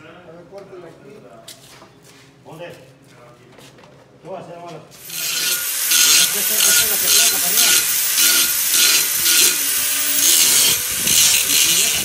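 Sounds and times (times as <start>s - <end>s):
angle grinder cutting steel: 5.0s - 12.0s.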